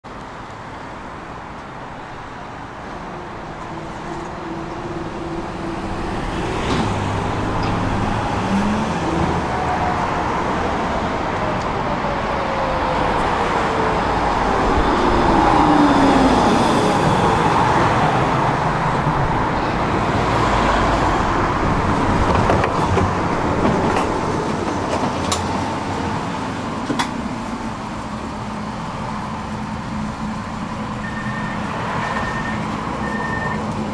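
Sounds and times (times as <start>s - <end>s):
street traffic noise: 0.0s - 33.9s
tram motor whine: 25.0s - 33.9s.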